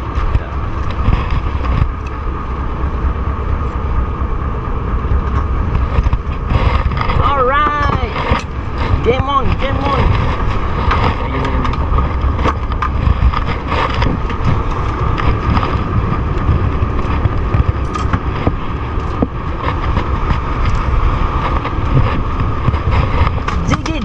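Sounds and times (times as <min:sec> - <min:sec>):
boat engine rumbling: 0:00.0 - 0:24.0
wind buffeting microphone: 0:00.0 - 0:24.0.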